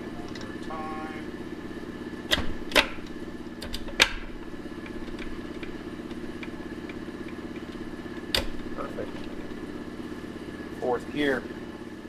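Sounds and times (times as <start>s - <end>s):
steady machine hum: 0.0s - 12.0s
gear shifter clunks and clicks: 2.3s - 9.6s.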